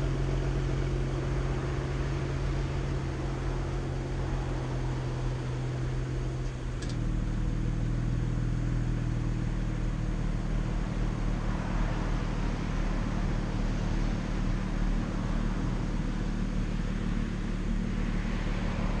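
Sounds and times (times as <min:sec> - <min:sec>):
car engine idling: 0:00.0 - 0:19.0.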